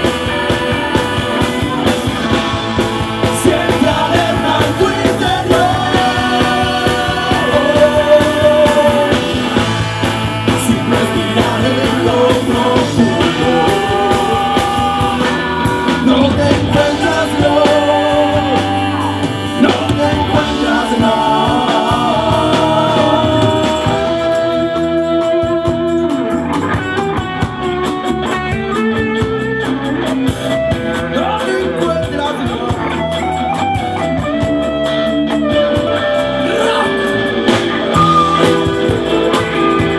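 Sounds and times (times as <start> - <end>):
blues-rock band playing: 0.0 - 39.9.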